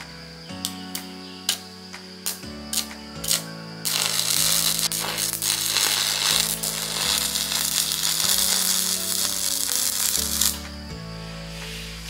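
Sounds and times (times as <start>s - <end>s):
background music: 0.0s - 12.0s
welding arc crackling and hissing: 2.2s - 10.7s.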